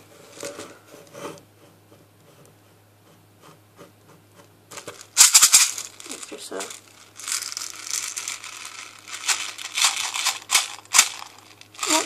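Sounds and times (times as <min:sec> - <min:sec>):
plastic bottle of beads rubbing: 0:04.8 - 0:12.0.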